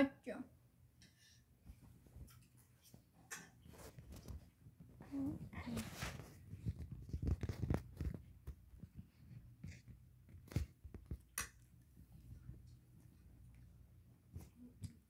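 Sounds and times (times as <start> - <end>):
handling noise clicks and rustles: 5.7 - 11.8.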